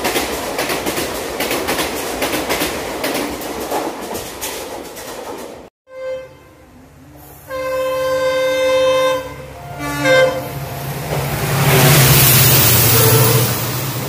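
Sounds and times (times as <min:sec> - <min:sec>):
train horn blasts: 0:05.9 - 0:10.8, 0:12.8 - 0:13.6
locomotive passing at speed: 0:06.9 - 0:14.0.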